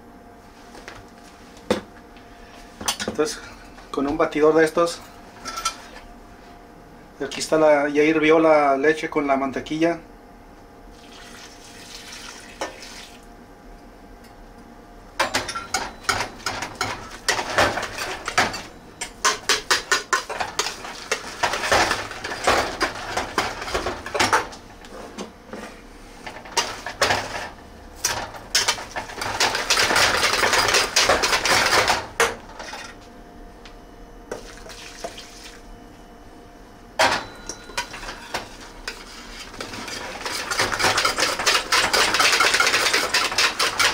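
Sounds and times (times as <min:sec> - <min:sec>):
masher knocking and scraping in pot: 0:19.2 - 0:24.6, 0:37.7 - 0:43.9.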